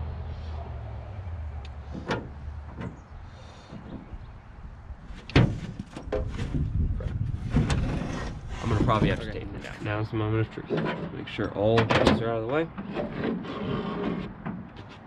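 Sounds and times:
board knocking and scraping: 5.1 - 9.8, 11.8 - 15.0.

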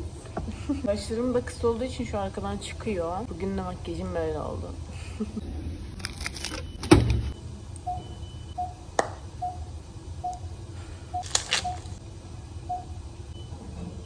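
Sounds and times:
equipment short beeps: 6.5 - 8.8.

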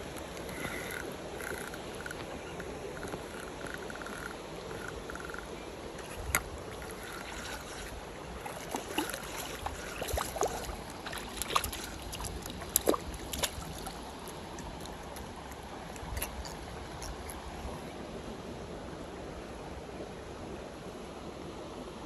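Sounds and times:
stream water running: 0.0 - 22.0
sharp clicks and splashes: 6.0 - 17.6.

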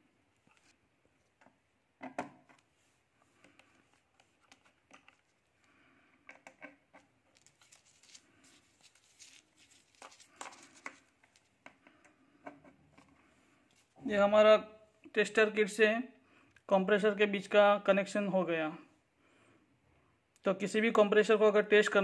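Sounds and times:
cable rustling: 2.6 - 12.0.

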